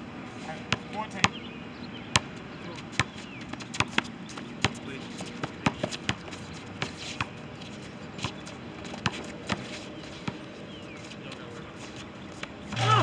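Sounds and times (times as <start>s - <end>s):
basketball bouncing on asphalt: 0.7s - 1.4s, 2.1s - 7.4s.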